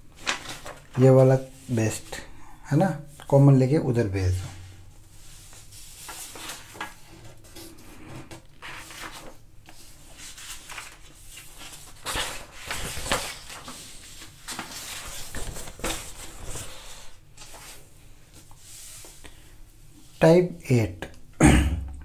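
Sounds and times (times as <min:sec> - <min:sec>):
paper rustling: 0:00.0 - 0:02.2, 0:04.2 - 0:19.2.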